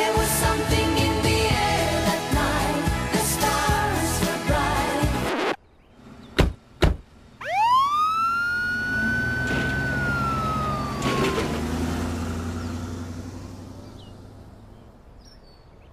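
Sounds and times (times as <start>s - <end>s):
engine low rumble: 0.2s - 15.9s
ambulance siren wailing: 7.4s - 13.8s.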